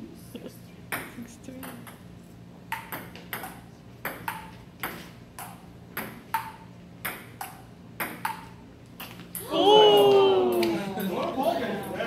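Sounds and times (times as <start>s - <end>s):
ping pong ball bouncing on table: 0.9s - 2.0s, 2.7s - 8.5s
ping pong ball hitting paddles: 0.9s - 2.0s, 2.7s - 9.4s.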